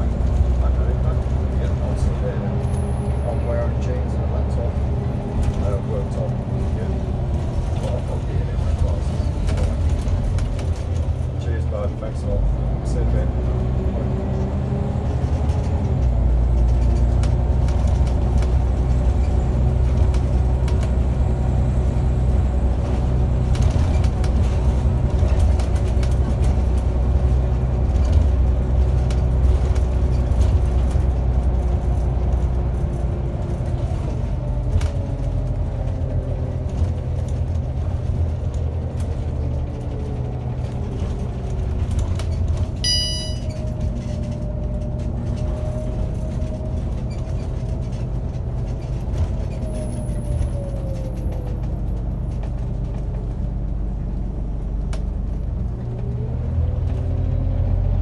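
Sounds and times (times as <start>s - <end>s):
bus engine and road rumble: 0.0s - 58.0s
short electronic beep: 42.8s - 43.6s.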